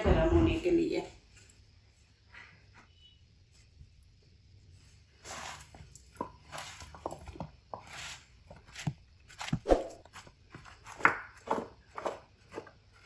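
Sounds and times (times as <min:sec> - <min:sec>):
potato strips rustling in bowl: 0:05.0 - 0:13.0.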